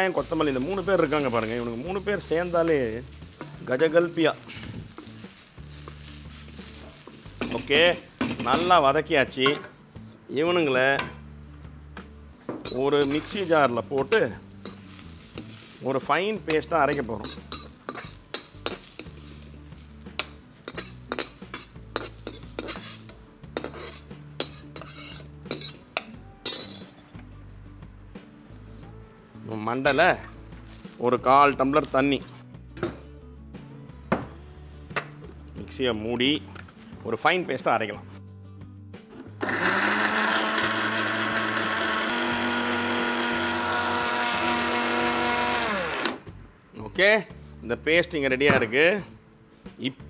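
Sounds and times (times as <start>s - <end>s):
metal ladle scraping and clanking: 12.6s - 15.8s, 16.5s - 19.5s, 20.7s - 25.8s, 26.4s - 27.0s
mixer grinder running: 39.4s - 46.2s.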